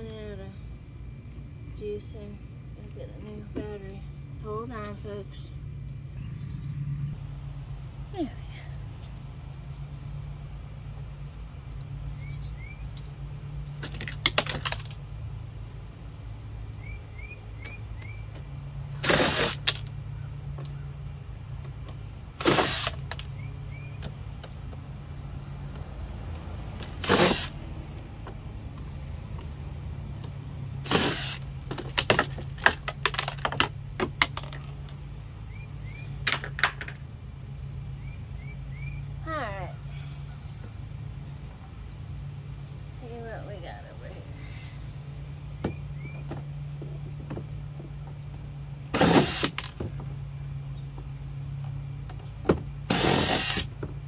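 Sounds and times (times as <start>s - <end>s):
steady low hum: 0.0s - 54.0s
handling clicks and rattles: 13.8s - 15.0s
cordless drill bursts: 19.0s - 19.8s, 22.4s - 23.2s, 27.0s - 27.6s, 30.8s - 31.5s, 48.9s - 49.8s, 52.8s - 53.8s.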